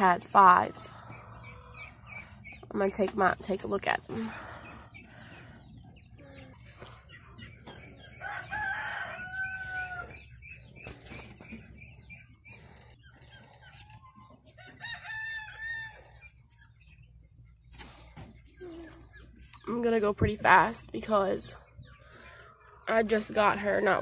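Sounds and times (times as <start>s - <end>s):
hens clucking: 0.0s - 24.0s
rooster crowing: 8.2s - 10.2s.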